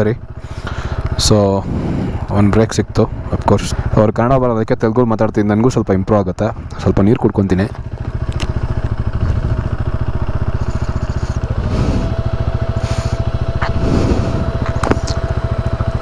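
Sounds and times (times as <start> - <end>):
motorcycle engine idling: 0.0 - 16.0
thin steady whine: 8.0 - 16.0.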